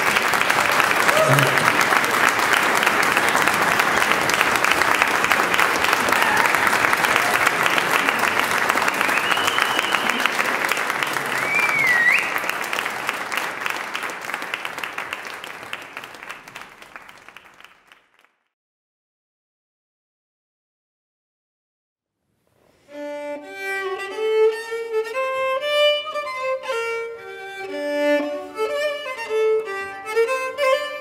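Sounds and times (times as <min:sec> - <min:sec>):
audience clapping: 0:00.0 - 0:18.5
whistle from crowd: 0:09.0 - 0:10.4, 0:11.4 - 0:12.5.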